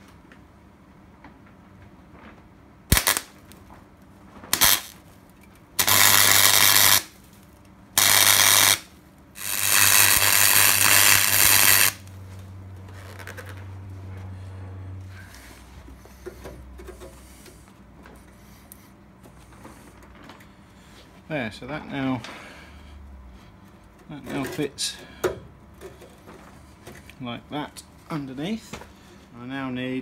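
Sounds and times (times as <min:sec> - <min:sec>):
low steady hum: 0:00.0 - 0:30.0
welding arc crackling hiss: 0:02.9 - 0:03.5, 0:04.5 - 0:05.0, 0:05.8 - 0:07.2, 0:08.0 - 0:12.0.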